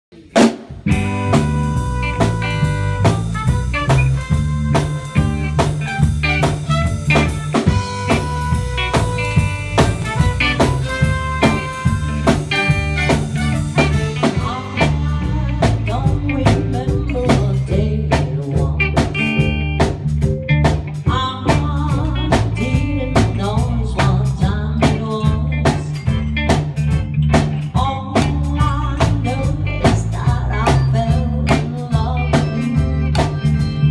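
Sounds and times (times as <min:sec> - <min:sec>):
drum kit: 0:00.1 - 0:33.9
live band playing upbeat song: 0:00.1 - 0:33.9
electric guitars: 0:00.2 - 0:33.9
keyboard: 0:00.8 - 0:33.9
horn: 0:01.0 - 0:15.2
woman singing into microphone: 0:14.2 - 0:19.5, 0:21.1 - 0:26.0, 0:27.7 - 0:33.0.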